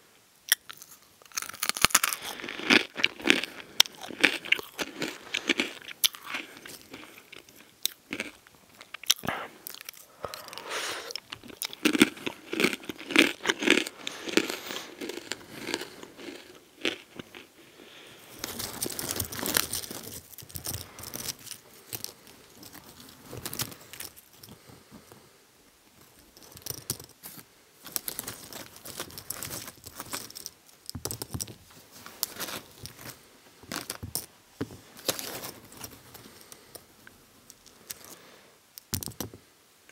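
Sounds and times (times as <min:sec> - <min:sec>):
pretzels clicking together: 0:00.5 - 0:17.5, 0:18.4 - 0:24.6, 0:26.2 - 0:31.6, 0:38.8 - 0:39.4
pretzels crunching while chewed: 0:00.5 - 0:24.7, 0:26.2 - 0:34.3
snack bag rustling: 0:00.6 - 0:25.0, 0:26.2 - 0:36.9.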